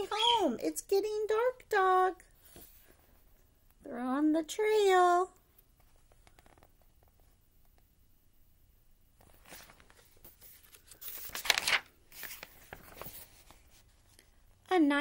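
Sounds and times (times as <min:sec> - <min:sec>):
paper page turning: 0:05.8 - 0:07.2, 0:09.2 - 0:14.3.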